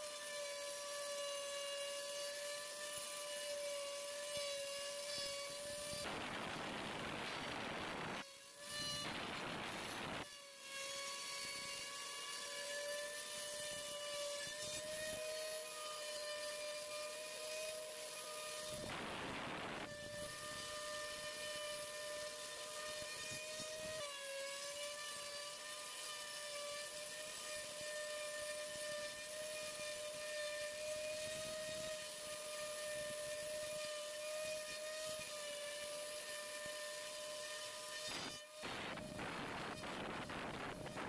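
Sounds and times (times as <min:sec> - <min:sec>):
router spindle cutting wood: 0:00.0 - 0:41.0.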